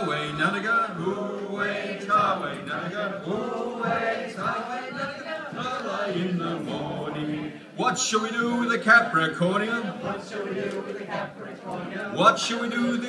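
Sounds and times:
group singing unaccompanied chant: 0.0 - 13.0.

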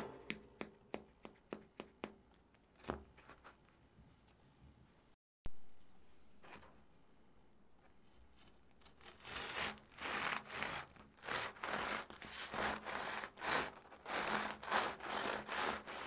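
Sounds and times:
bread knife sawing crust: 8.9 - 16.0.

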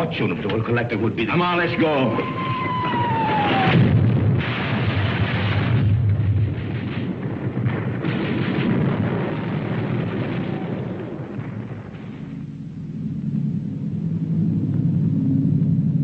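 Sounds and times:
low steady rumble: 0.0 - 16.0
shell explosions: 2.2 - 12.6
gunfire: 2.7 - 12.3.

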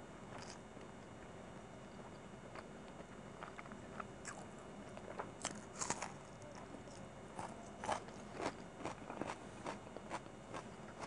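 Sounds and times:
crunching bites and chewing: 0.3 - 0.6, 2.5 - 11.0.

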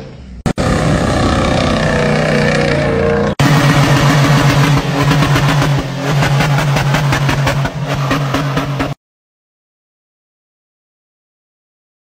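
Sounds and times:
engine running at high revs: 0.0 - 9.0
engine with pulsing exhaust: 0.0 - 9.0.

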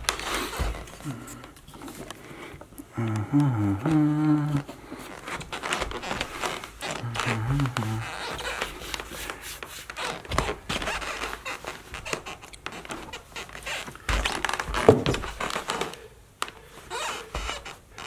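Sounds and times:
shuffling: 0.0 - 18.0
cloth rustling: 4.5 - 16.0
boots thumping on rug: 14.0 - 15.7.

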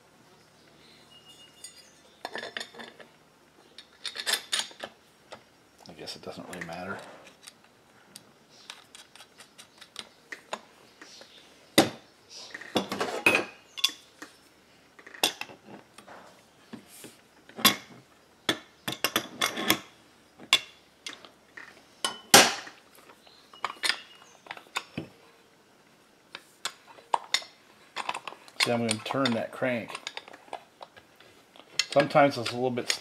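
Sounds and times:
metal tools clinking on workbench: 1.1 - 3.1, 3.8 - 4.9, 23.5 - 25.0, 31.8 - 33.0.

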